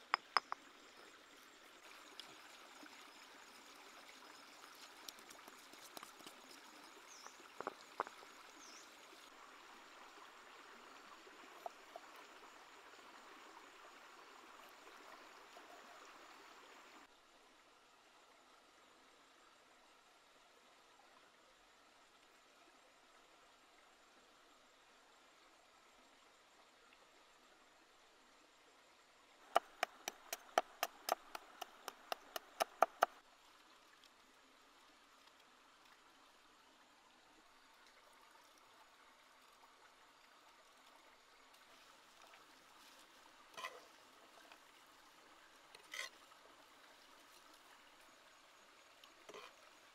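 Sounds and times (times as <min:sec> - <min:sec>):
cleaver chopping on wooden board: 0:00.1 - 0:00.6, 0:29.6 - 0:33.1.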